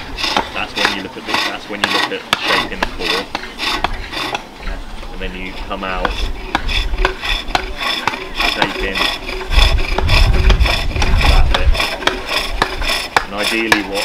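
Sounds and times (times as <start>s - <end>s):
hook tool rasping on spinning wood: 0.0s - 14.0s
low rumble: 9.2s - 12.0s.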